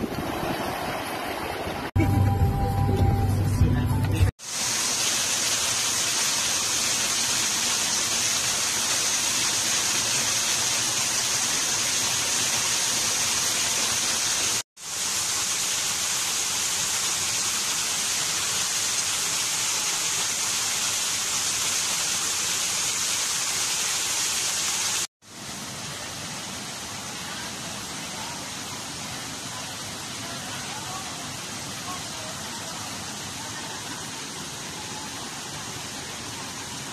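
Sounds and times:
waterfall splashing onto rock: 4.4 - 25.1.

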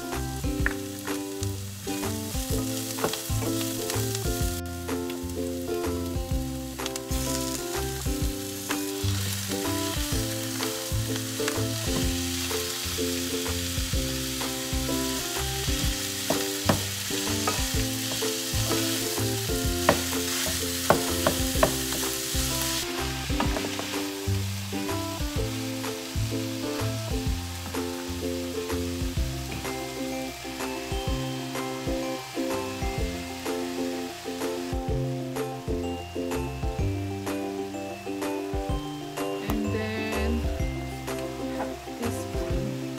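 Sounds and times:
meat sizzling in a frying pan: 0.0 - 39.4
quiet background music: 0.0 - 42.9
spatula tapping and scraping pan: 16.2 - 22.3.

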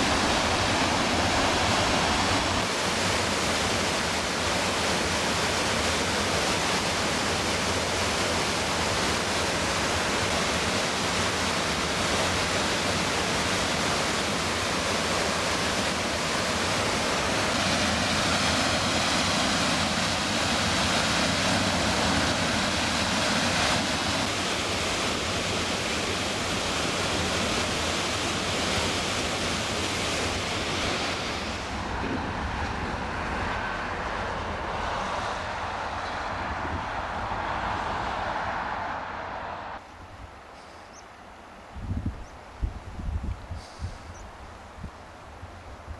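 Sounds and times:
quiet open-air ambience: 0.0 - 45.9
rush of white water: 0.0 - 45.9.

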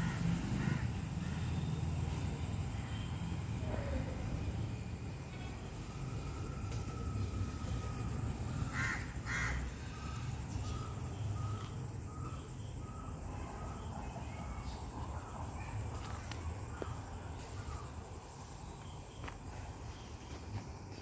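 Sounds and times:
crow cawing: 0.0 - 1.6, 8.6 - 9.9.

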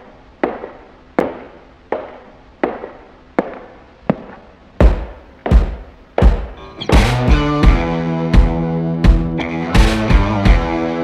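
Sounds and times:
deep bass booms: 4.8 - 10.7.

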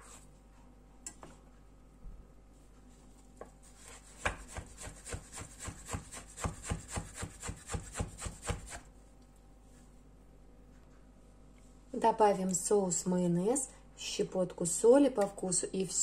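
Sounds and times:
knife chopping on wooden board: 4.0 - 8.9.

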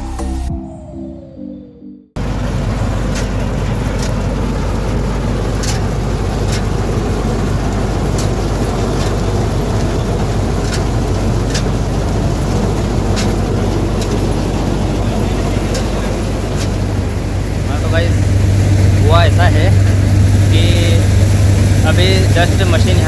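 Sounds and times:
combine harvester engine drone: 0.0 - 23.0.

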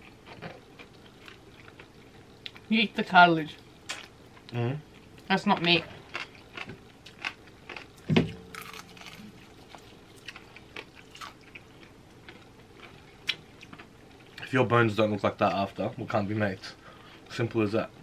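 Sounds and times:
crunchy chewing: 0.0 - 2.7, 3.9 - 14.5.

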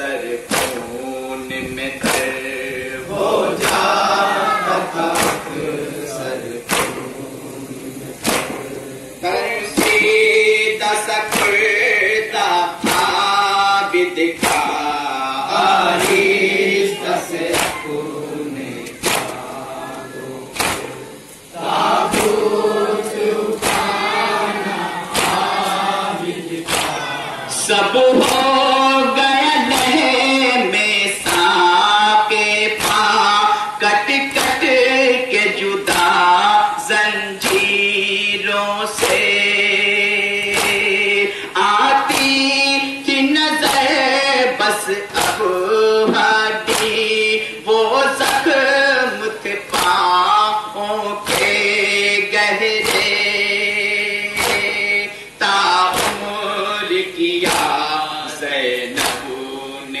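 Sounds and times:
men's chorus chanting: 0.0 - 60.0
hands slapping chests: 0.4 - 1.0, 2.0 - 2.5, 3.6 - 4.0, 5.0 - 5.6, 6.6 - 7.2, 8.2 - 9.2, 9.8 - 10.2, 11.3 - 11.7, 12.8 - 13.3, 14.4 - 14.9, 15.8 - 16.4, 17.4 - 17.9, 18.8 - 19.5, 20.5 - 22.5, 23.5 - 25.8, 26.6 - 27.2, 28.2 - 28.6, 32.8 - 33.1, 34.4 - 34.6, 37.4 - 37.8, 39.0 - 39.4, 40.5 - 41.0, 42.0 - 42.4, 43.6 - 43.9, 45.1 - 47.1, 48.2 - 48.6, 49.7 - 50.1, 51.2 - 51.8, 52.8 - 53.2, 54.4 - 54.8, 55.9 - 56.3, 57.4 - 57.9, 58.9 - 59.4.

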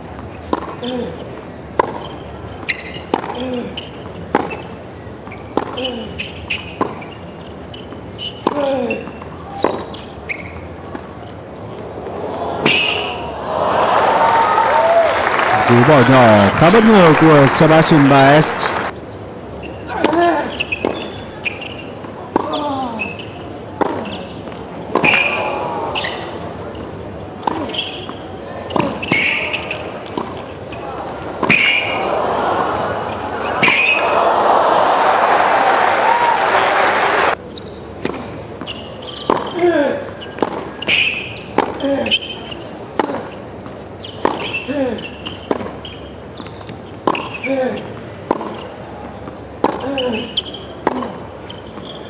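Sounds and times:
sneaker squeaks: 0.2 - 11.4, 12.6 - 13.3, 19.5 - 32.0, 33.1 - 34.2, 37.4 - 52.0
racket striking tennis ball: 33.5 - 34.0, 48.3 - 48.6, 50.8 - 51.2
tennis ball hit by racket: 48.3 - 48.6, 49.6 - 49.9, 50.8 - 51.2.

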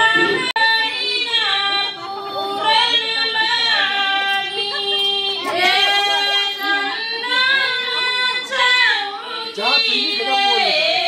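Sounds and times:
high voice singing: 0.0 - 8.8.

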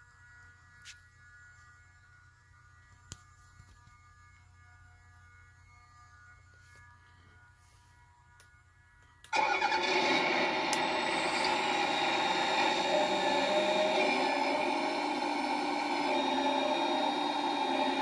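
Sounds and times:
simulated diesel engine: 9.3 - 18.0.

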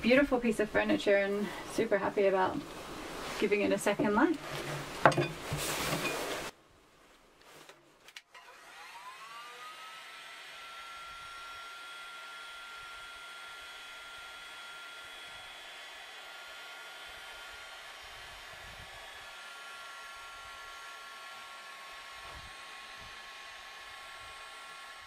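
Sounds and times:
heat gun whirring: 8.2 - 25.0.

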